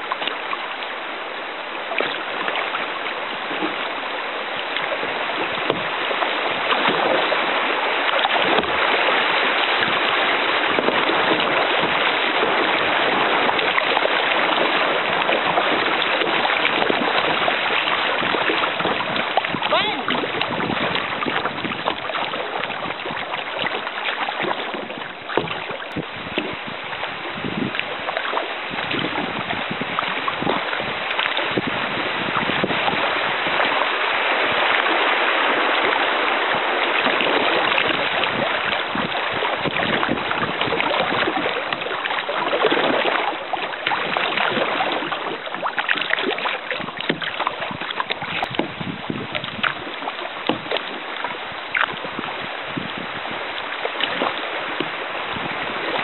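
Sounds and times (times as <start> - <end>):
river water rushing and splashing: 0.0 - 56.0.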